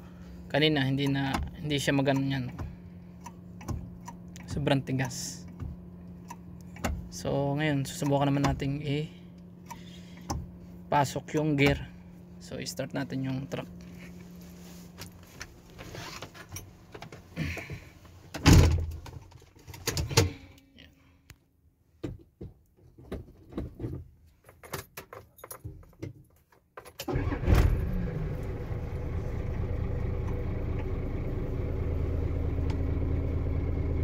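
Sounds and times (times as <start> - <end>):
diesel engine starting and idling: 27.0 - 34.0.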